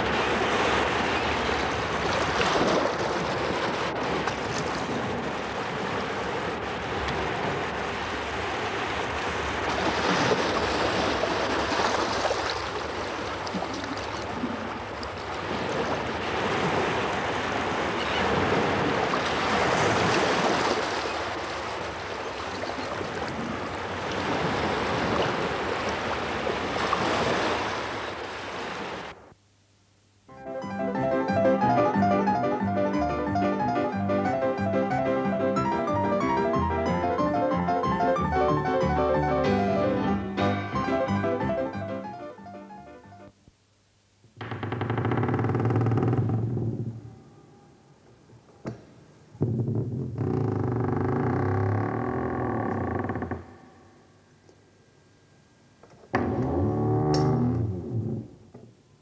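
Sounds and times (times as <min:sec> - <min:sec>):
sea waves washing in: 0:00.0 - 0:29.2.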